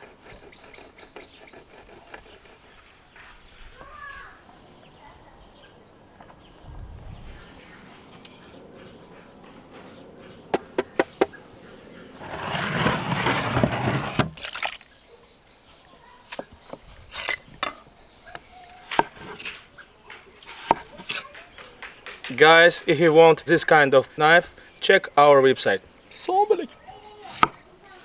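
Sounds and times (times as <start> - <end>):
loud rustling: 12.2 - 14.5
knife chopping on wooden board: 20.5 - 22.2, 27.3 - 27.6.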